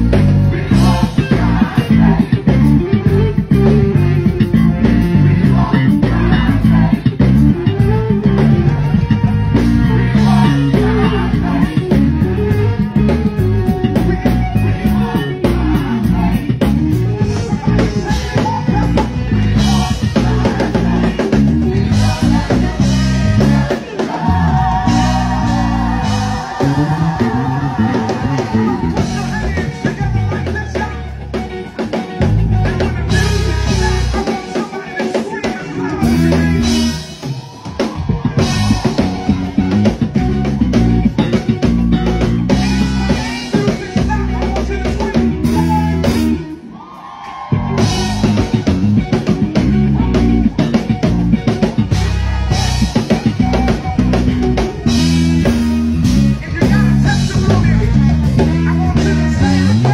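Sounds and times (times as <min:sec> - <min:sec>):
singing: 0:00.0 - 0:03.0, 0:09.5 - 0:31.2, 0:56.4 - 0:59.9
organ: 0:00.0 - 0:46.7, 0:47.5 - 0:59.9
bass: 0:00.0 - 0:59.9
drum kit: 0:00.0 - 0:59.9
electric guitar: 0:00.0 - 0:59.9
keyboards: 0:00.0 - 0:59.9.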